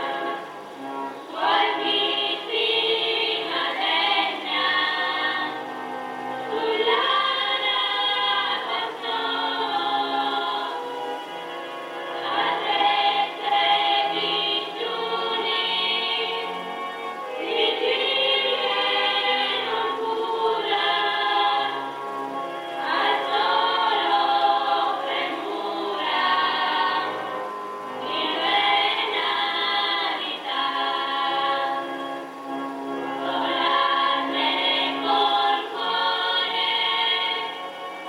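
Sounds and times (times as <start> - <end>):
choir singing: 0.0 - 38.0.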